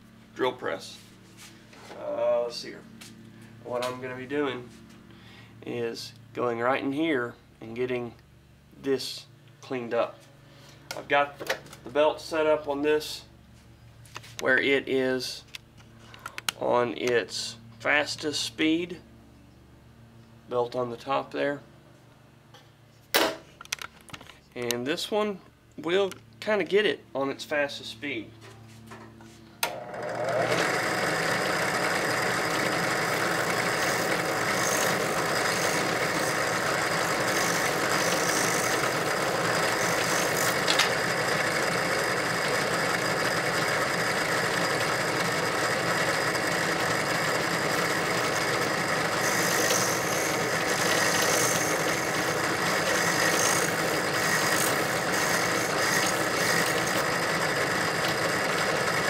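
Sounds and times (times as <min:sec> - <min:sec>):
drill press running: 0:29.6 - 0:59.0.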